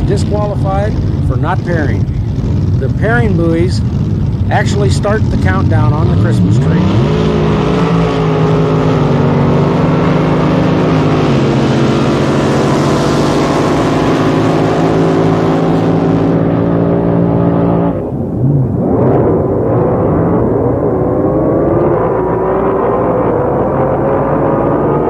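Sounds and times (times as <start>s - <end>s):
boat engine running hard: 0.0s - 25.0s
distant engines wavering pitch: 0.0s - 25.0s.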